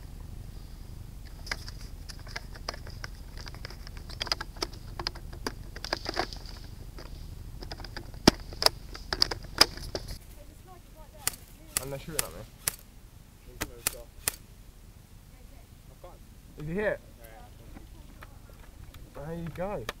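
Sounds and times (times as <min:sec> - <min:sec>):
faint high whine: 0:00.0 - 0:20.0
pellets cracking against wood: 0:01.3 - 0:10.4, 0:11.2 - 0:12.9, 0:13.6 - 0:14.5.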